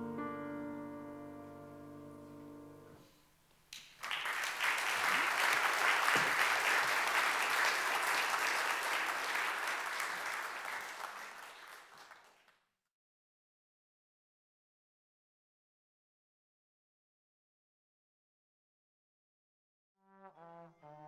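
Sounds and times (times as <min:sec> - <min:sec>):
piano: 0:00.0 - 0:03.0
audience applauding: 0:03.8 - 0:12.5.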